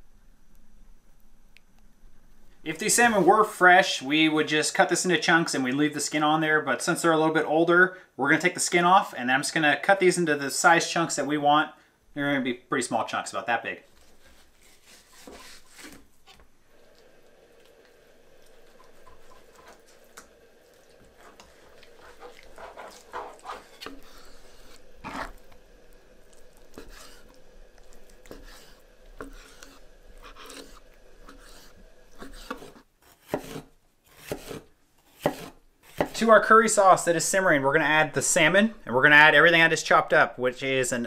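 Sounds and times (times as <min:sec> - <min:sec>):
knife slicing and scraping fish: 0:13.9 - 0:16.4, 0:20.8 - 0:25.6, 0:26.3 - 0:36.3.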